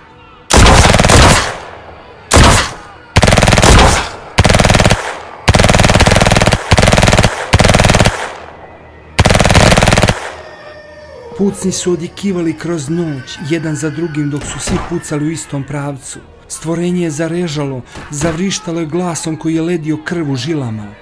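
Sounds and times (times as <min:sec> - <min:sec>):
bursts of rapid gunfire: 0:00.5 - 0:01.7, 0:02.3 - 0:08.5, 0:09.2 - 0:10.4.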